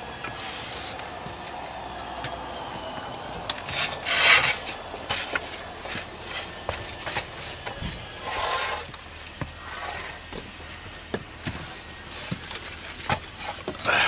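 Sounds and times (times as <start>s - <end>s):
rushing scrape: 3.6s - 8.9s.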